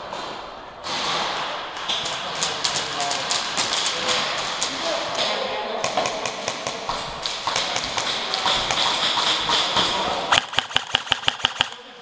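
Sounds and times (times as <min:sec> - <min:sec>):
airsoft rifle firing burst: 0:10.3 - 0:11.8
scattered clicks: 0:10.3 - 0:11.8.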